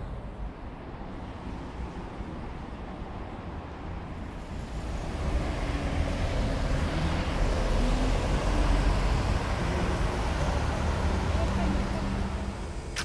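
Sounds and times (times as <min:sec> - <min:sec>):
cars driving past: 0:04.2 - 0:13.0.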